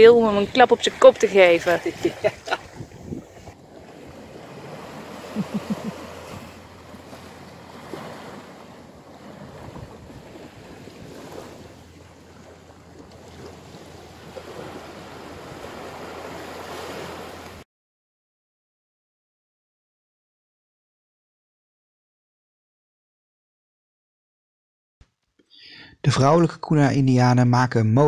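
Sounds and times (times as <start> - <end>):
small waves lapping on sand: 0.0 - 17.6
wind on microphone: 1.7 - 17.6.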